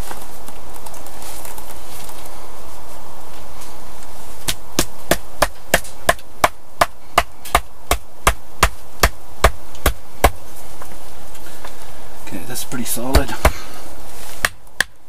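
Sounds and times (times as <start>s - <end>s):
hammering on wooden pole: 4.5s - 10.4s, 13.0s - 13.6s, 14.4s - 15.0s.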